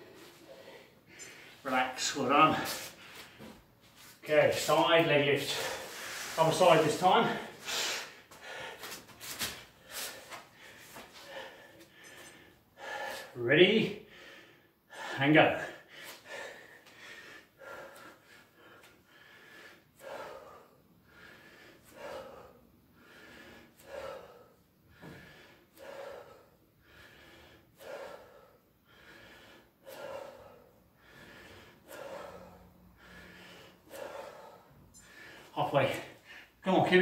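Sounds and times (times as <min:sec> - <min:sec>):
man breathing heavily: 0:00.0 - 0:36.9.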